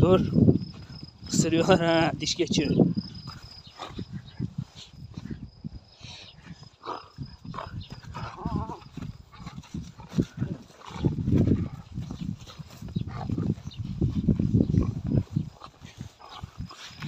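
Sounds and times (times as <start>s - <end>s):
puppies snuffling and chewing: 6.4s - 17.0s.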